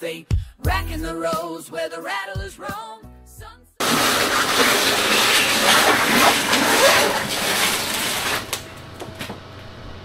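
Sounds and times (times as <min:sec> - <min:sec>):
packaging rustling and scraping: 0:03.8 - 0:09.4.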